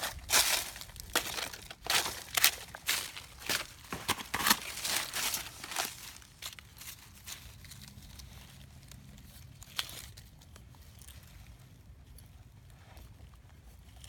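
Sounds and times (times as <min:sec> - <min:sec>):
soil scraping: 0:00.0 - 0:07.8
dry leaf litter crackling: 0:00.0 - 0:10.3.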